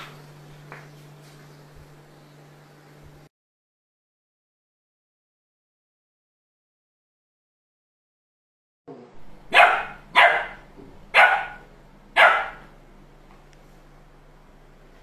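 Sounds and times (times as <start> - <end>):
dog barking: 9.5 - 12.8.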